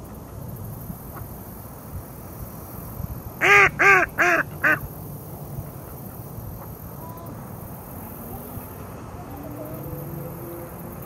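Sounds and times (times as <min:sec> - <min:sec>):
duck quacking: 0:03.4 - 0:04.8.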